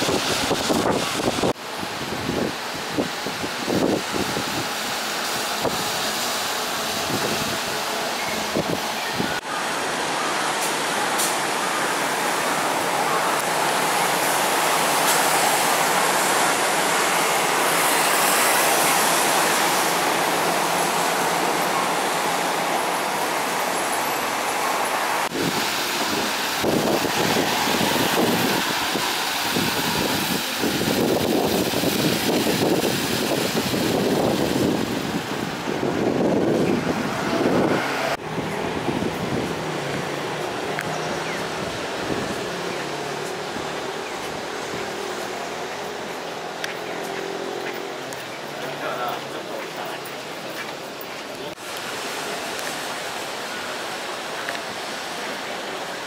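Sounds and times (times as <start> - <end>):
wind on microphone: 0.0 - 4.8, 6.9 - 9.4, 25.2 - 45.4
bus pulling away: 0.0 - 56.0
traffic noise: 0.0 - 56.0.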